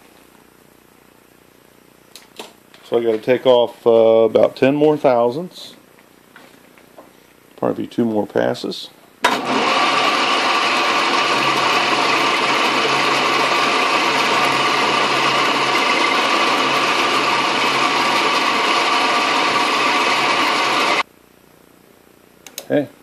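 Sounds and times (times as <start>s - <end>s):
metal lathe whirring: 9.3s - 21.0s.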